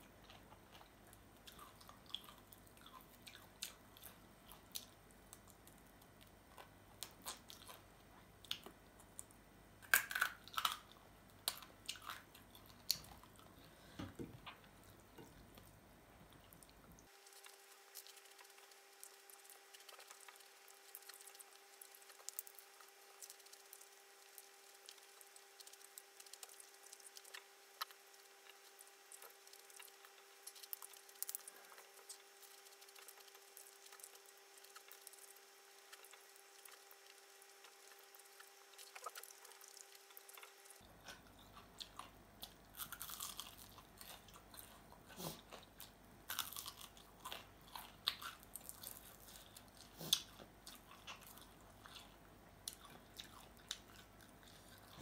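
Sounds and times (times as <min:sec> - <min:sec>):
chewing and crunching food: 0:00.0 - 0:55.0.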